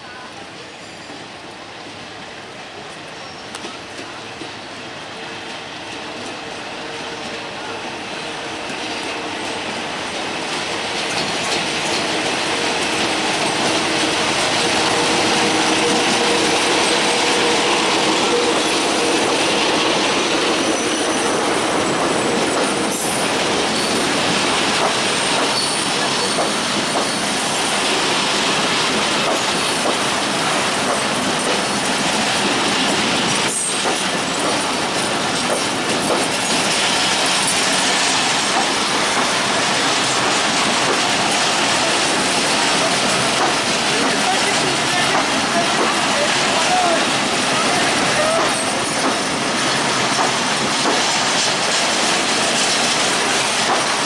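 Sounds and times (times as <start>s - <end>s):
train wheels rushing on rail: 0.0s - 54.0s
clicking over rail joints: 24.6s - 25.6s, 32.9s - 47.3s, 48.0s - 54.0s.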